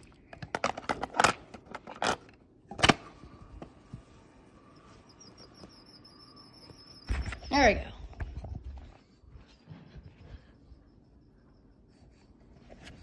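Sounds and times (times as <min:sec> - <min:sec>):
faint steady hum: 0:00.0 - 0:13.0
cassette tape clicks and clatter: 0:00.3 - 0:03.1.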